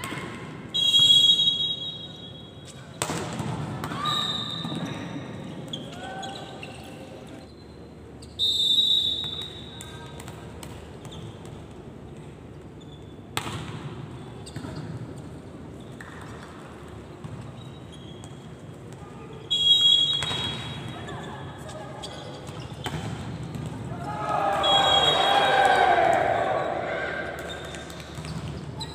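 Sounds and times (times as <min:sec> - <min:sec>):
referee whistle: 0:00.7 - 0:02.6, 0:04.0 - 0:04.8, 0:08.4 - 0:09.7, 0:19.5 - 0:20.9, 0:24.5 - 0:26.8
players' voices: 0:23.7 - 0:27.9.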